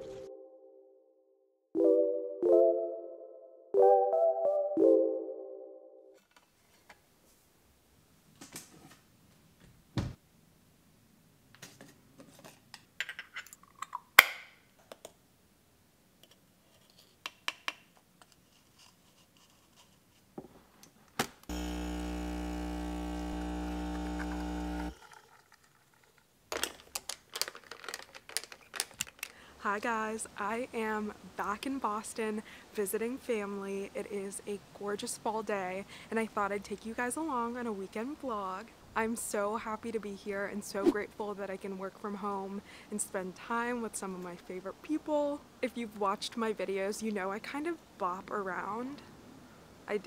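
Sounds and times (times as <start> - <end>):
espresso machine pump buzzing: 21.5 - 25.2.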